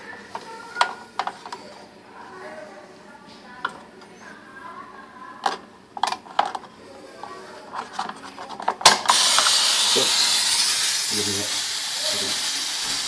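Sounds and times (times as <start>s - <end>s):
water spraying from hose: 9.1s - 13.0s.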